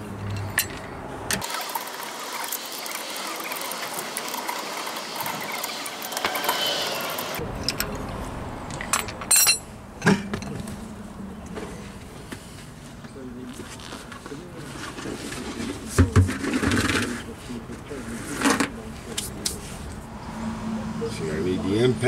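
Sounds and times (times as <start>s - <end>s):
metallic clinks: 9.0s - 9.7s.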